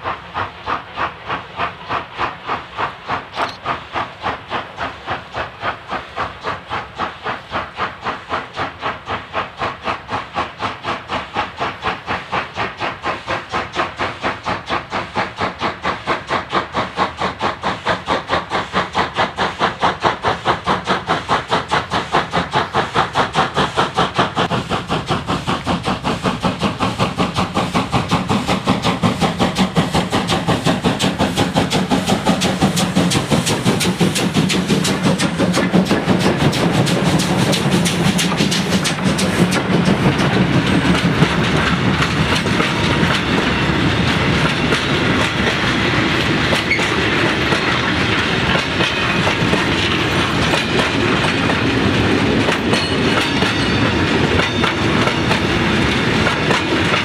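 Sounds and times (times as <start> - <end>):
steam locomotive exhaust beats: 0.0 - 57.0.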